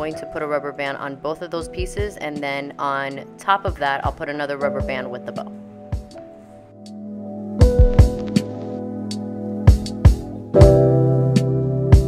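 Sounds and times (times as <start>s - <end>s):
held keyboard chord: 4.9s - 12.0s
kick drum and snare beat: 7.6s - 8.4s, 9.7s - 10.9s.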